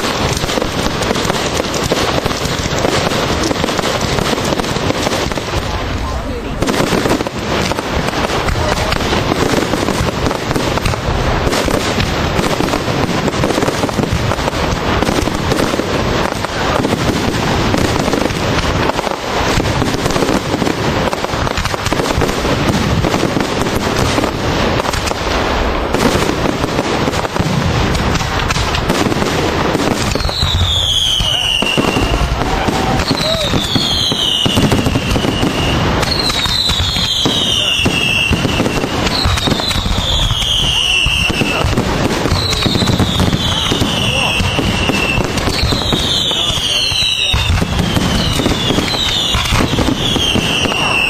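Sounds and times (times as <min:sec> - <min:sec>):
fireworks bangs and crackling: 0:00.0 - 0:51.0.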